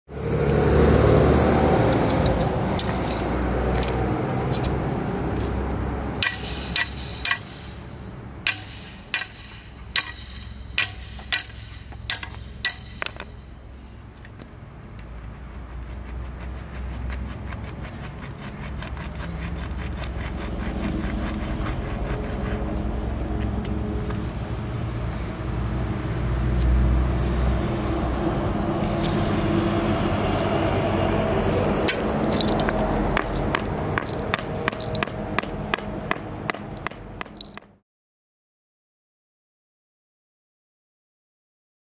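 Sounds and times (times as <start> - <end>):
hammer striking steel blades: 6.2 - 13.5, 31.8 - 37.7.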